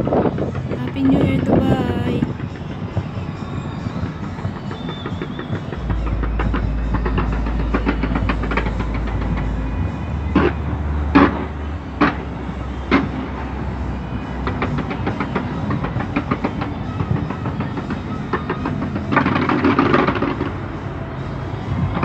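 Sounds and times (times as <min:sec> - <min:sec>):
fireworks crackling: 0:00.8 - 0:12.2.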